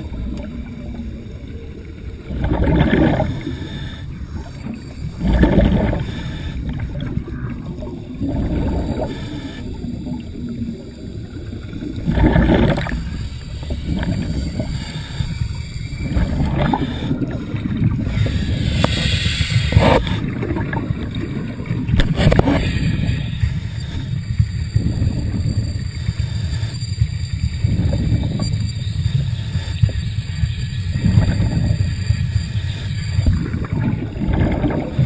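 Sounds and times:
steady low rumble: 0.0 - 35.0
air bubbling underwater: 2.2 - 3.7, 4.3 - 9.2, 11.9 - 14.8, 16.0 - 23.2, 33.2 - 35.0.

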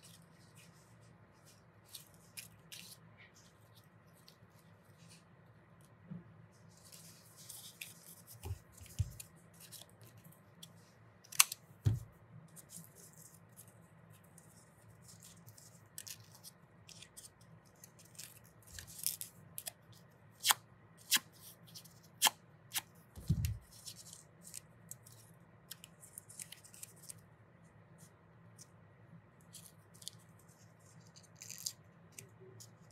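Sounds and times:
paper rustling and crinkling: 6.6 - 19.3.

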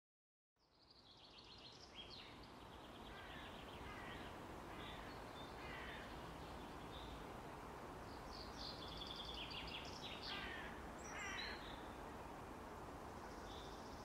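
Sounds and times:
outdoor background noise: 0.6 - 14.0
small birds chirping: 8.0 - 12.0.

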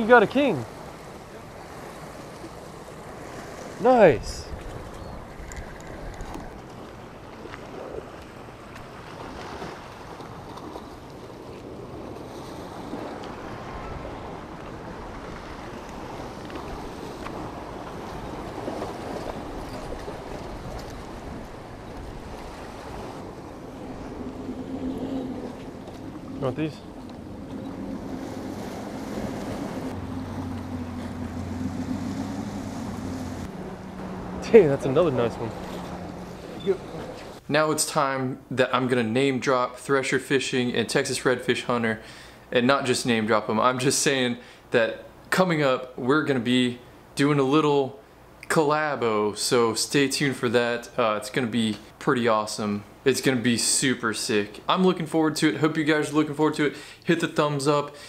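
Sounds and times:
waves washing against rocks: 0.0 - 37.4
boat motor humming: 0.0 - 37.5
surf: 0.0 - 47.7
wind buffeting microphone: 3.0 - 37.4.

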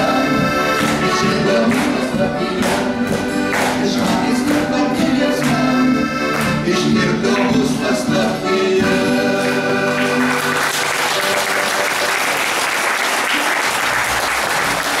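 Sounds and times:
audience applause: 9.4 - 15.0.

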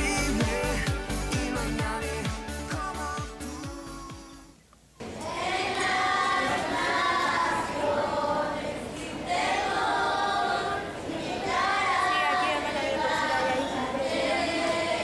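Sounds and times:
children singing together: 5.0 - 15.0.

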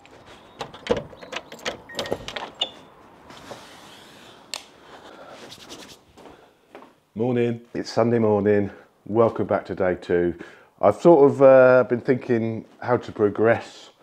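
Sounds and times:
footsteps: 4.8 - 7.0.

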